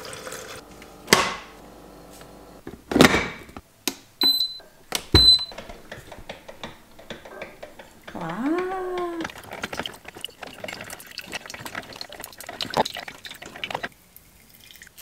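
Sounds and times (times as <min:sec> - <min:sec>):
water pouring: 0:00.0 - 0:00.6, 0:08.2 - 0:15.0
control panel click and beep: 0:04.2 - 0:04.6, 0:05.2 - 0:05.5.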